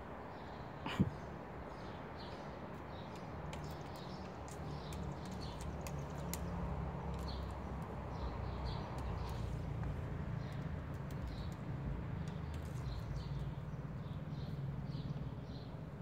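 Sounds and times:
small birds chirping: 0.2 - 16.0.

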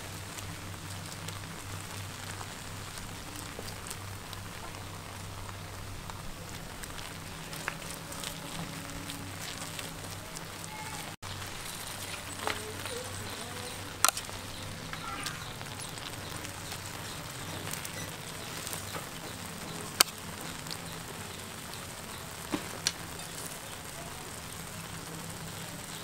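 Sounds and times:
charcoal fire crackling: 0.0 - 26.0
sharp clicks: 13.7 - 16.6.

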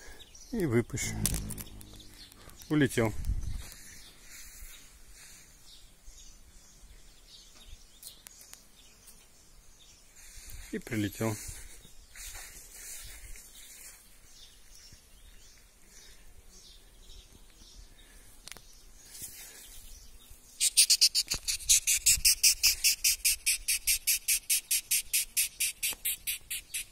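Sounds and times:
beetle squeaking chirps: 20.6 - 26.9.

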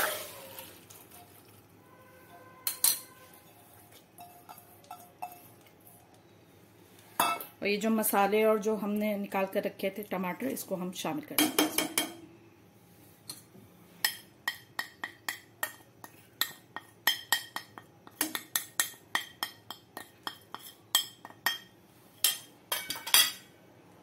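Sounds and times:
dishware clinking on metal pot: 2.6 - 3.6, 7.2 - 7.5, 16.4 - 23.5.

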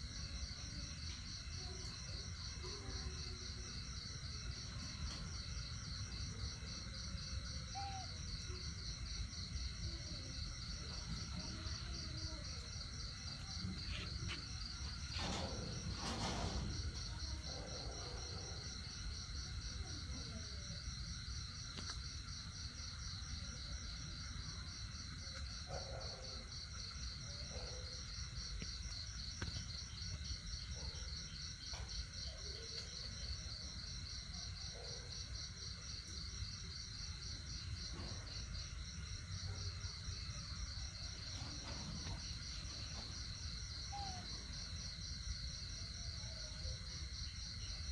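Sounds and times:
insects calling: 4.6 - 17.4, 40.3 - 45.1.

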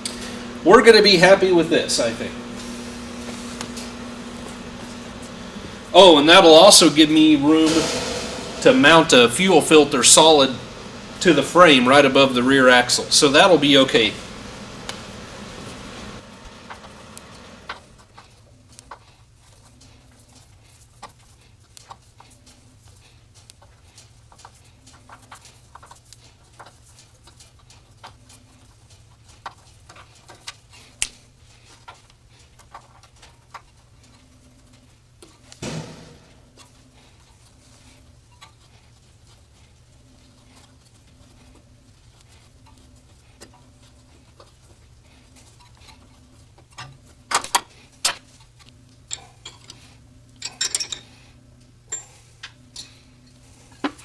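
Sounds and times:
metal clunk: 35.6 - 36.6.

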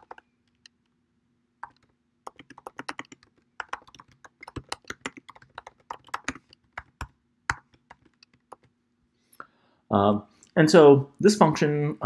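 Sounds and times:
computer keyboard typing: 0.0 - 0.2, 1.6 - 8.7.

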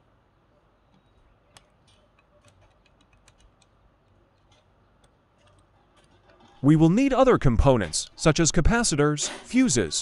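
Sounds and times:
small clicks and taps on circuit board: 0.9 - 6.2.

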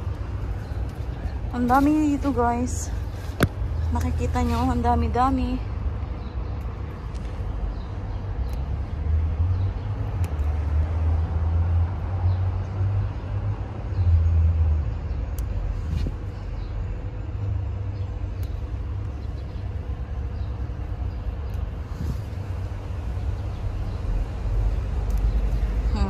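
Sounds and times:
rustling plant foliage: 0.0 - 5.7, 19.2 - 23.9
low outdoor rumble: 0.0 - 26.0.

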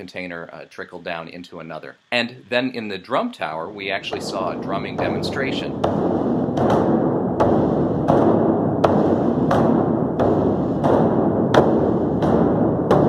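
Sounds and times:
large drums booming: 3.8 - 13.0.

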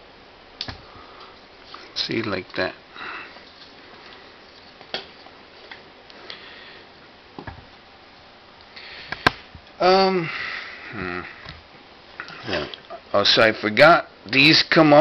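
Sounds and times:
person humming: 10.9 - 11.4.

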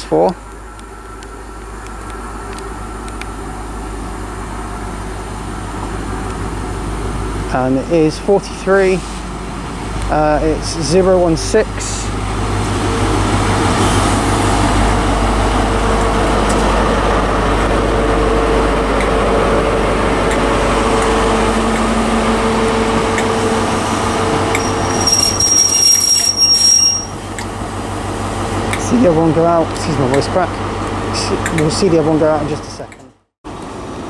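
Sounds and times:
train wheel rumble: 0.0 - 32.9
diesel train engine: 0.0 - 34.0
high brake squeal: 24.5 - 27.3.

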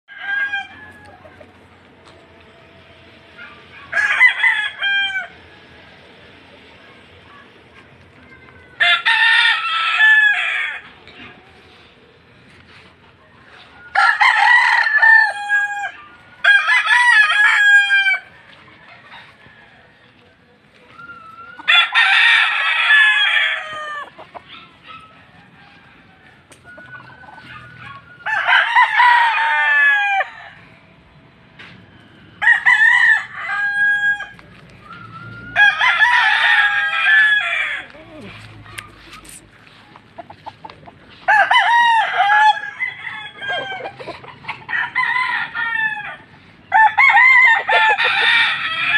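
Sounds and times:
roosters crowing: 0.1 - 7.6, 8.7 - 48.9.

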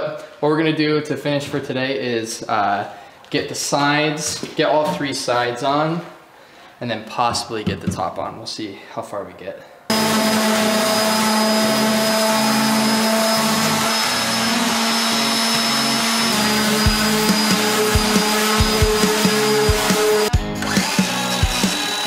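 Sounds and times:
orbital sander on wood: 9.9 - 22.0
background music with beat: 16.8 - 22.0.

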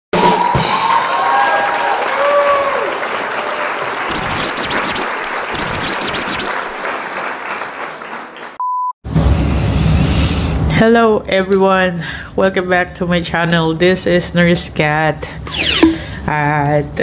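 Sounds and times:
crowd applauding: 0.2 - 8.6
short tones: 15.4 - 16.2.

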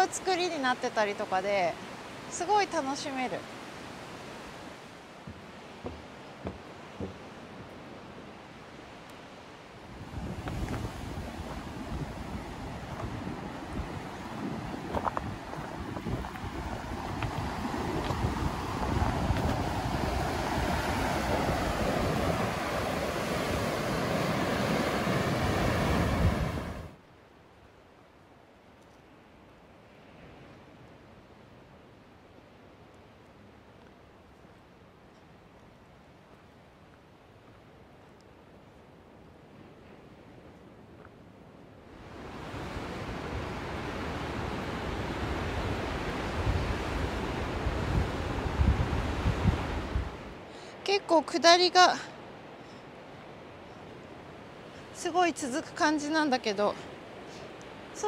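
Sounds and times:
ocean surf breaking on rocks: 0.0 - 27.0, 41.9 - 58.0
wind buffeting microphone: 9.9 - 26.9, 42.0 - 50.4.

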